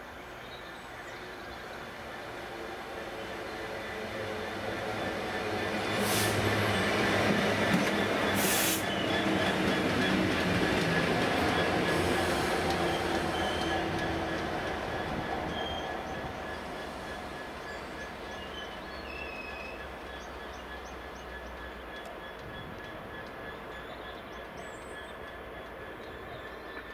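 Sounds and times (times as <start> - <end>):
diesel locomotive passing: 0.1 - 26.9
wheels on rails: 4.0 - 26.9.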